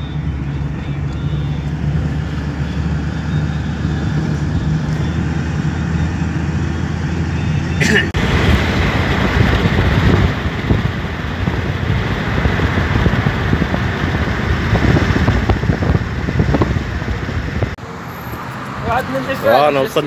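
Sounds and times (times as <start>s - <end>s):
car road noise: 0.0s - 20.0s
wind buffeting microphone: 8.2s - 17.8s.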